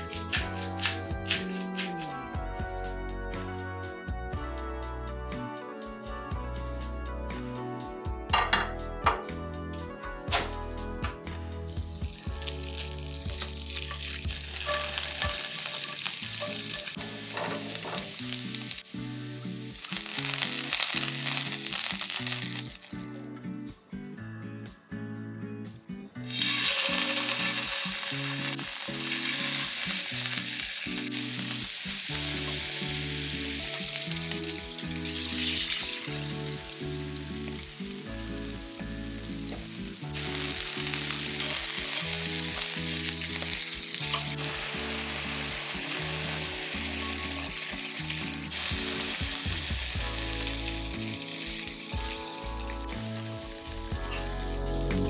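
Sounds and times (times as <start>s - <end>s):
scallops sizzling in frying pan: 11.8s - 22.9s, 26.3s - 53.8s.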